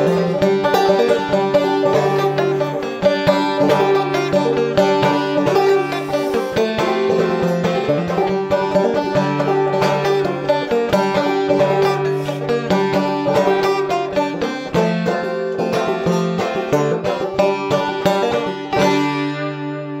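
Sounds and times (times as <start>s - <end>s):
banjo picking: 0.0s - 20.0s.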